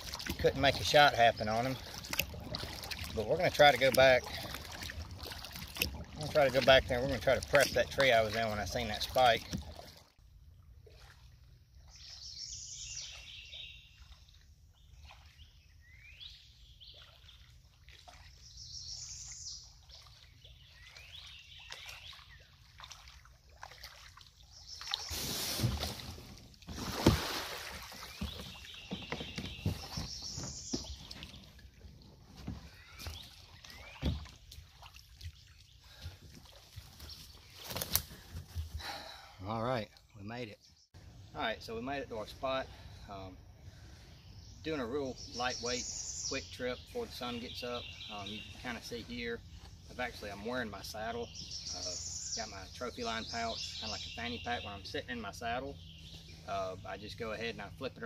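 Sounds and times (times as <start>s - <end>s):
songbird singing: 0.0s - 9.8s, 11.7s - 26.8s, 27.5s - 58.0s
water splashing and sloshing: 0.0s - 39.1s, 45.4s - 58.0s
kayak knocks: 25.5s - 34.6s.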